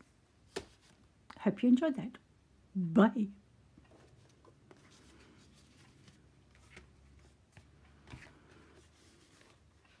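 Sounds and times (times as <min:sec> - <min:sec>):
paper cards rustling: 0:03.9 - 0:10.0.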